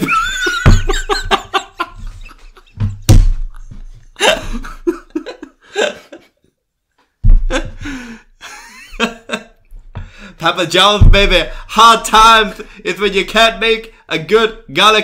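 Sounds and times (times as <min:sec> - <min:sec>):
people laughing loudly: 0:00.0 - 0:06.4, 0:07.5 - 0:09.5
microphone thump: 0:00.5 - 0:01.6, 0:02.8 - 0:04.1, 0:07.2 - 0:07.9, 0:11.0 - 0:11.6.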